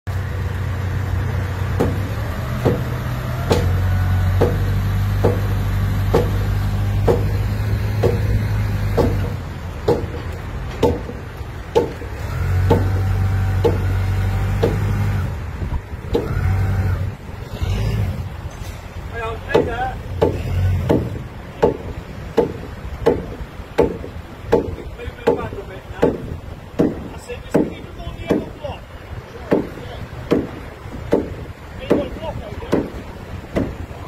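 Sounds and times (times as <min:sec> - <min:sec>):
forklift engine revving: 0:00.1 - 0:10.6, 0:11.2 - 0:22.2
faint engine whine: 0:00.1 - 0:25.1.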